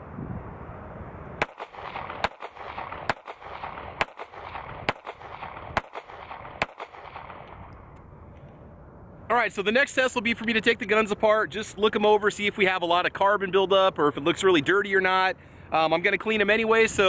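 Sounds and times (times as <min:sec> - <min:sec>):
pistol shots: 0:01.4 - 0:07.7.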